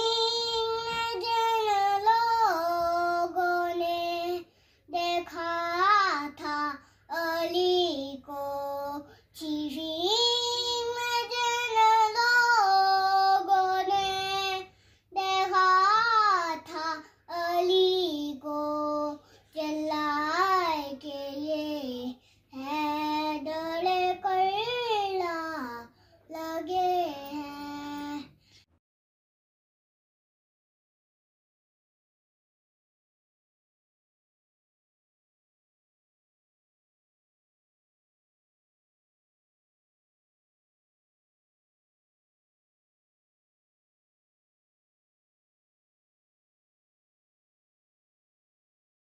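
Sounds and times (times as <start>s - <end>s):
boy reciting melodically: 0.0s - 28.3s.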